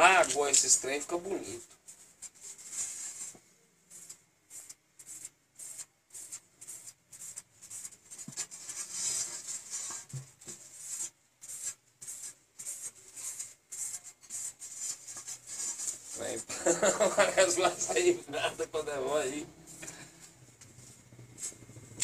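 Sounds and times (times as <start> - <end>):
rubbing strokes on wet paint: 0.1 - 22.0.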